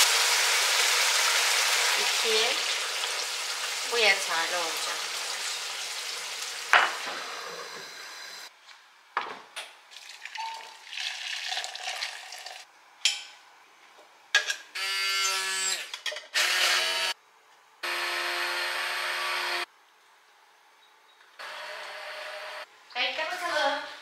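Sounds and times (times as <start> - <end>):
electric blender motor: 7.2 - 8.5, 14.8 - 17.2, 17.8 - 19.7, 21.4 - 22.7.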